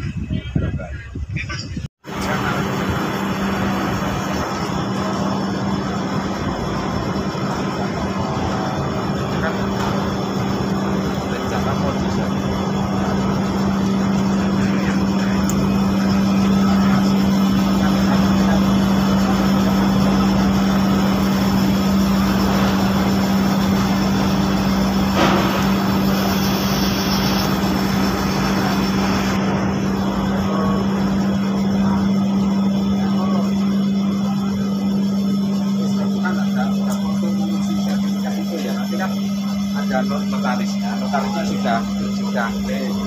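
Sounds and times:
rushing noise: 0:02.0 - 0:32.6
ferry engine droning: 0:02.0 - 0:43.0.

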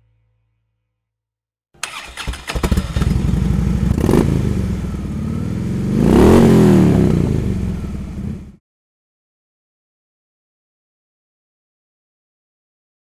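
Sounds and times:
motorcycle engine idling and revving: 0:01.8 - 0:08.6.

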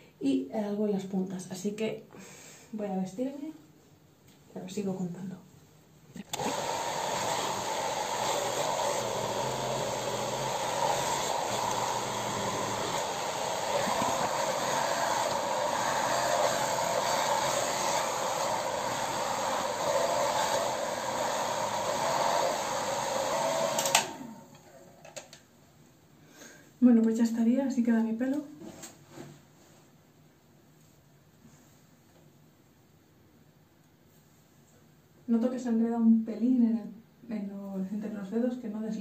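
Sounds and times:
hair dryer blowing: 0:06.2 - 0:24.6.

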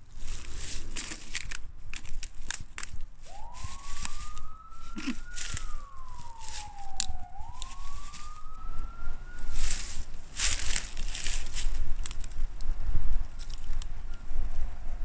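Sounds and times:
footsteps crunching dry leaves: 0:00.0 - 0:12.4
police siren wail: 0:03.2 - 0:11.8.

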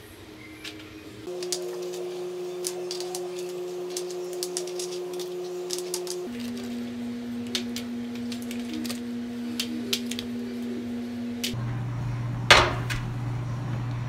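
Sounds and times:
steady hum: 0:00.0 - 0:14.0
macaron shells clicking on trays: 0:00.6 - 0:06.8, 0:07.4 - 0:10.8
stand mixer motor whipping: 0:01.2 - 0:14.0.

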